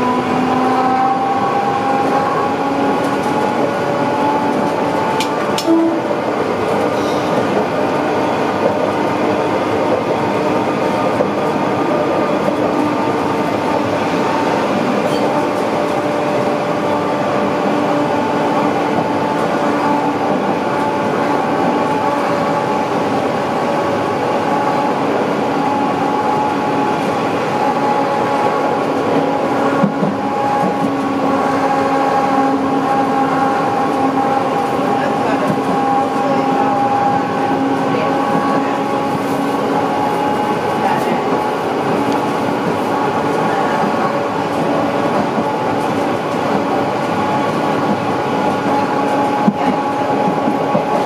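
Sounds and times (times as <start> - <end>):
tram wheels rumbling on rail: 0.0 - 51.0.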